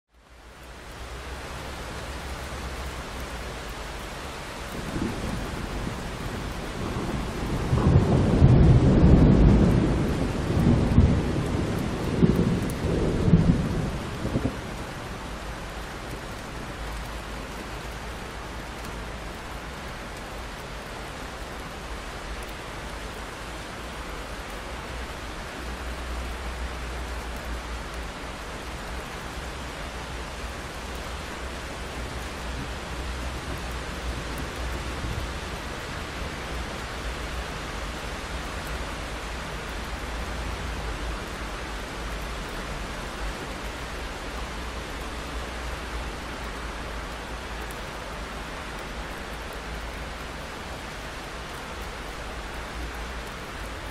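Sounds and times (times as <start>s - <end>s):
rain on a window: 0.1s - 53.9s
thunder rumbling: 4.7s - 15.0s.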